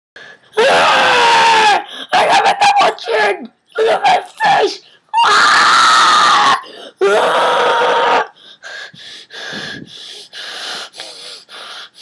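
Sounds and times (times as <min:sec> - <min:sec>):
person screaming: 0:00.6 - 0:08.3.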